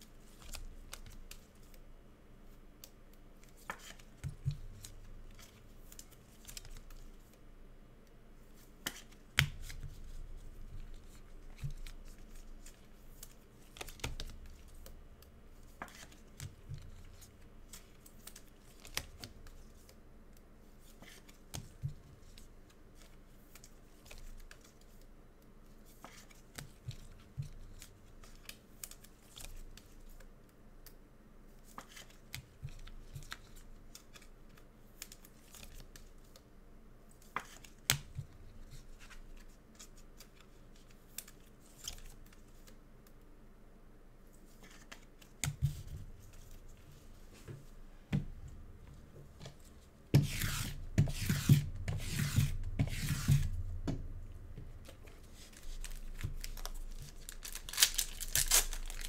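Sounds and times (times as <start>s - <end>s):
wrappers tearing and crinkling: 55.6s - 59.0s.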